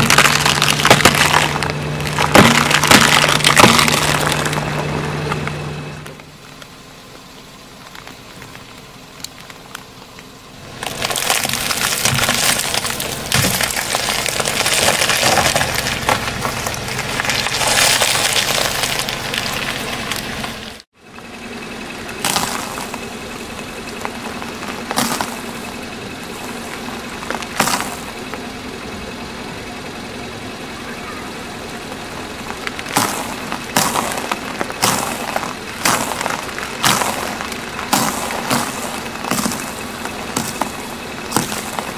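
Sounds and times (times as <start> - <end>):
plastic wrapper crackling: 0.0 - 4.8, 10.8 - 20.8
biscuits crunching: 0.0 - 5.6, 10.8 - 20.8, 32.3 - 41.9
sharp cracks under tyre: 0.0 - 21.3, 22.0 - 28.5, 31.8 - 41.9
car engine idling: 0.0 - 41.9.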